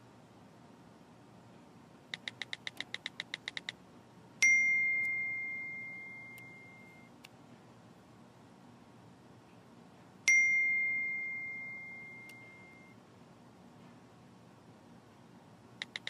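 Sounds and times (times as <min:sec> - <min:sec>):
phone typing ticks: 0:02.1 - 0:03.8, 0:12.2 - 0:12.9, 0:15.8 - 0:16.0
notification ding: 0:04.4 - 0:07.1, 0:10.3 - 0:12.9.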